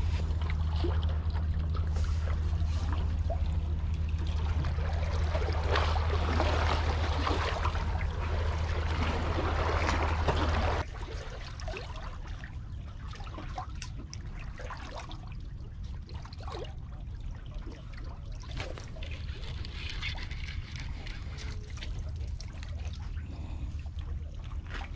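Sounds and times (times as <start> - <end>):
low rumble: 0.0 - 11.1
water lapping on concrete: 0.0 - 15.3, 17.6 - 24.9
fishing reel clicks: 19.1 - 21.6.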